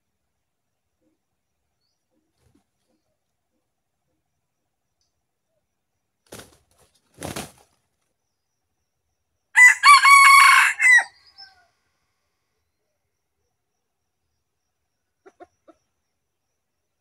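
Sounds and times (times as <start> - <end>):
roosters scuffling: 6.3 - 7.8
rooster crowing: 9.6 - 11.7.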